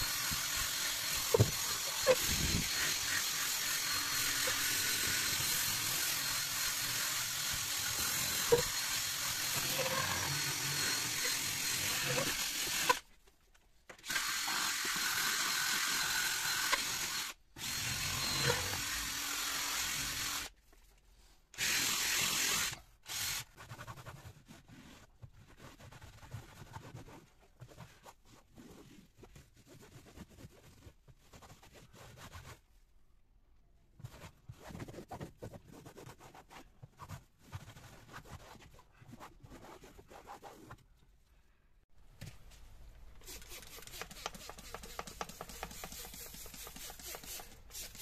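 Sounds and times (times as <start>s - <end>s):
cordless drill brush scrubbing: 0.0s - 13.0s, 14.1s - 20.5s, 21.6s - 23.5s, 43.2s - 48.0s.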